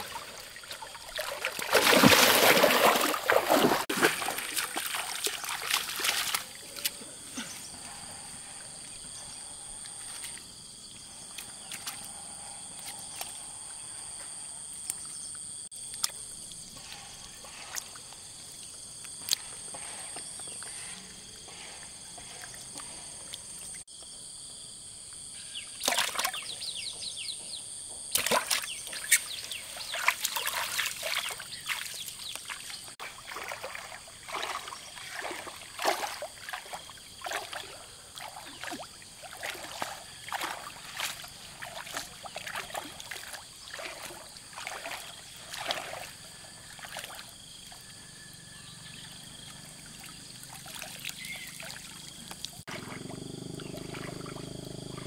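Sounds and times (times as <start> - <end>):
lake water splashing: 0.0 - 7.5, 25.8 - 26.6, 28.1 - 47.8, 48.9 - 55.0.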